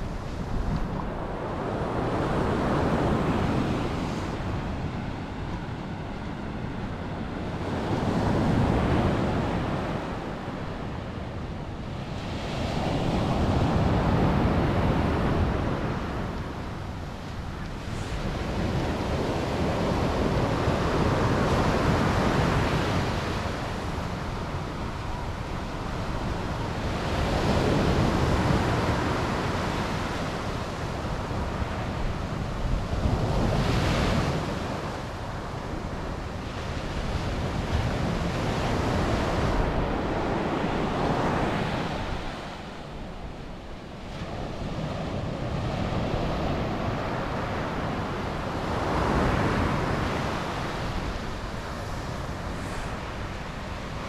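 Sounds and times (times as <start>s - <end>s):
wind on microphone: 0.0s - 54.0s.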